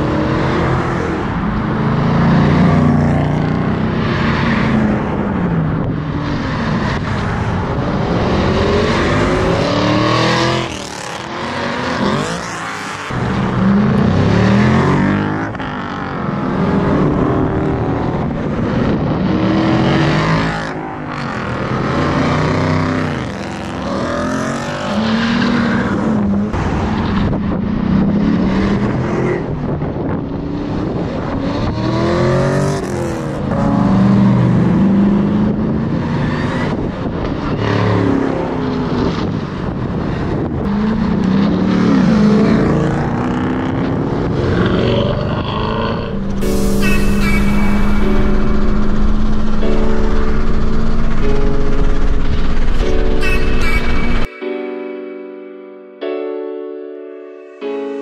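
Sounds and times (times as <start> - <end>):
car engines revving and accelerating: 0.0 - 54.3.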